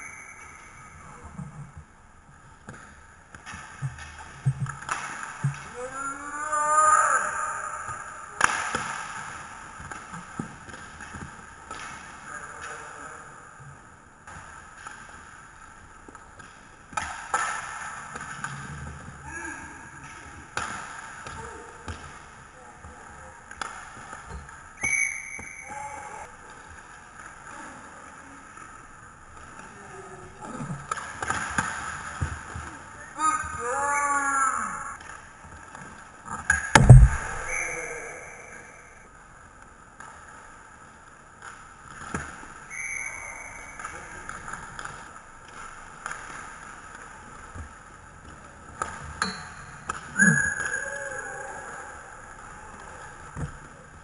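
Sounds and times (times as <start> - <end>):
hockey sticks and puck clacking: 0.0 - 1.9, 2.6 - 5.9, 7.9 - 13.0, 13.6 - 19.3, 20.0 - 27.9, 28.7 - 33.8, 35.0 - 51.2, 52.2 - 54.0
skates rolling on rink floor: 0.0 - 54.0
hockey stick hitting puck: 7.9 - 12.1, 36.5 - 38.0.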